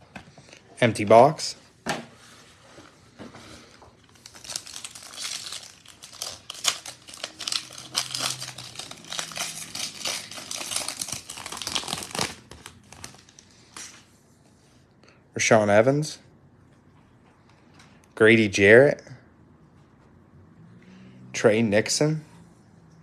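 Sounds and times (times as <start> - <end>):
foil wrapper crinkling and tearing: 4.0 - 13.4.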